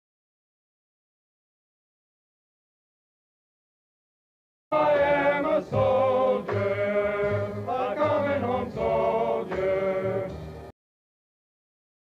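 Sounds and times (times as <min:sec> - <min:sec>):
soldiers singing in unison: 0:04.7 - 0:10.5.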